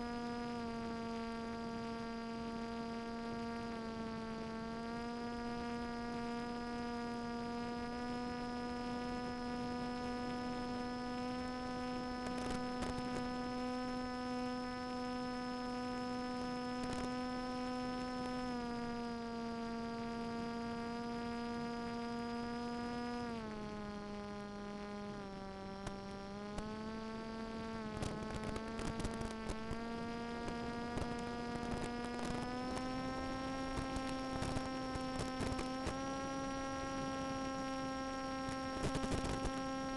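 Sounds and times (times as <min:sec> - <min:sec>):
electric motor and propeller whine: 0:00.0 - 0:39.9
crackles: 0:11.3 - 0:13.9, 0:23.6 - 0:39.9.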